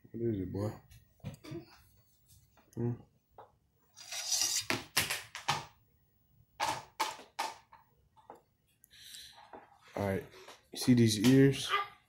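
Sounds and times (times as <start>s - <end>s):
short scrape: 4.0s - 4.7s.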